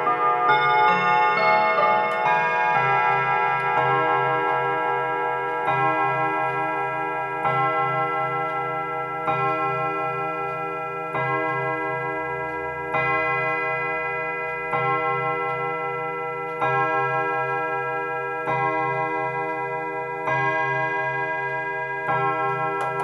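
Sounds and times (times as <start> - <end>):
clock chime melody: 0.0 - 23.0
clock striking the hour: 0.0 - 23.0
clock ticking: 0.0 - 23.0.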